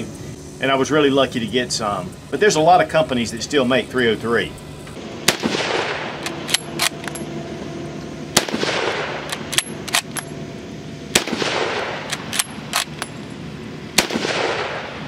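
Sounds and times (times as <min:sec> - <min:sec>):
rifle shots echoing: 0:05.2 - 0:07.2, 0:08.4 - 0:10.2, 0:11.1 - 0:13.0, 0:14.0 - 0:15.0
rifle bolt clacking: 0:09.3 - 0:10.3, 0:12.1 - 0:13.1.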